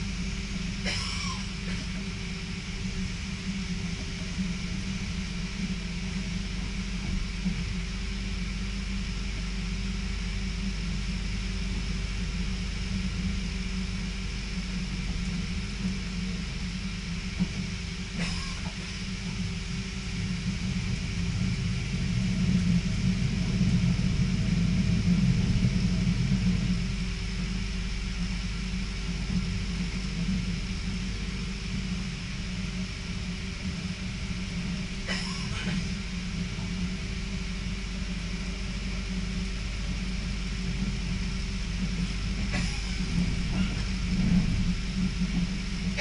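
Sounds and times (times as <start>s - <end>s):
train rumble inside carriage: 0.0s - 46.0s.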